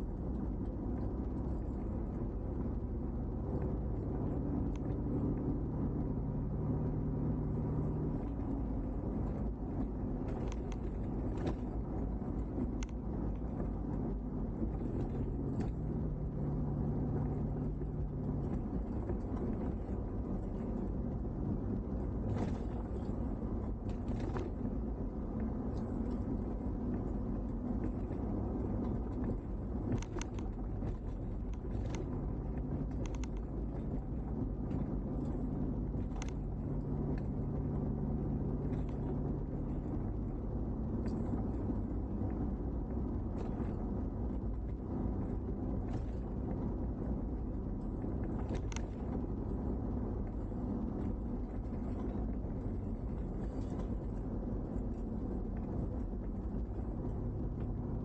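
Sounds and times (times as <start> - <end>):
car engine and tyre rumble: 0.0 - 58.0
low steady hum: 0.0 - 58.0
light clicks and ticks: 0.1 - 6.1, 7.9 - 58.0.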